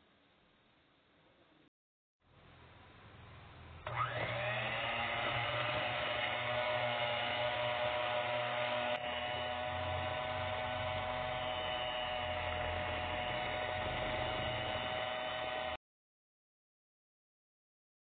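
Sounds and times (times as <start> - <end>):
electric hand mixer whirring: 3.8 - 15.8.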